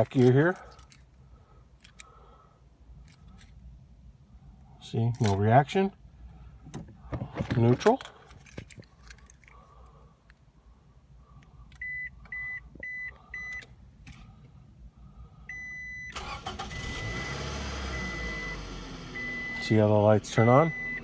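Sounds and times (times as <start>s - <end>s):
car engine starting and running: 15.9s - 21.0s
short beeps: 20.4s - 21.0s.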